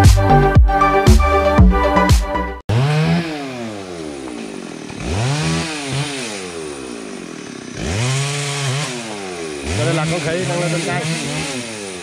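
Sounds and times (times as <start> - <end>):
chainsaw engine revving: 2.7 - 12.0.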